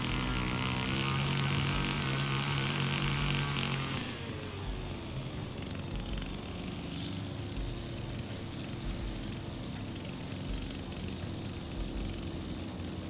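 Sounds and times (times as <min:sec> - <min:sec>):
distant engine hum: 0:00.0 - 0:13.0.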